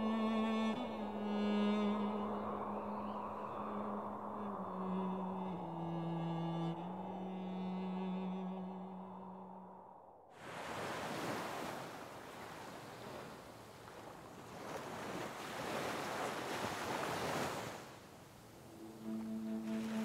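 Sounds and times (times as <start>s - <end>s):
waves washing onto shore: 0.4s - 7.0s, 10.4s - 20.0s
music: 18.7s - 20.0s.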